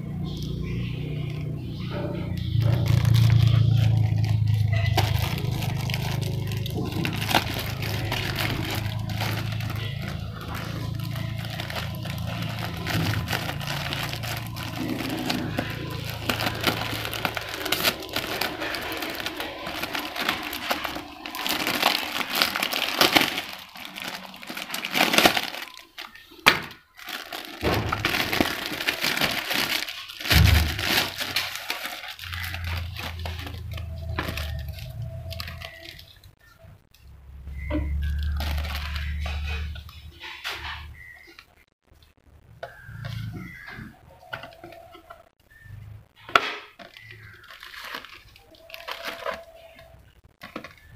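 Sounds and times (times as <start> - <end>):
plastic packaging crinkling: 0.0 - 50.9.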